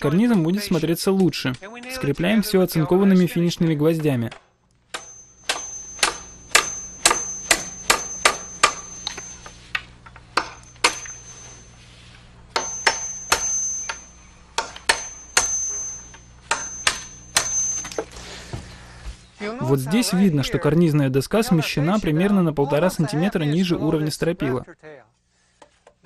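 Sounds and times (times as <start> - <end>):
hammer driving nails into wood: 4.0 - 9.3, 10.4 - 11.2, 14.6 - 15.8.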